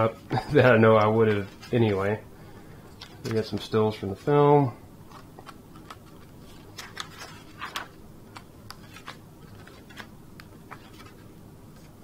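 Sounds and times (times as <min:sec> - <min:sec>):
paper pages turning: 0:05.1 - 0:12.0.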